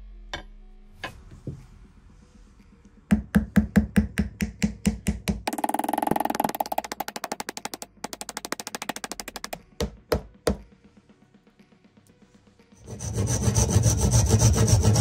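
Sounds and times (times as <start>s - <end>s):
hammer knocking on wooden handle: 3.1s - 10.6s.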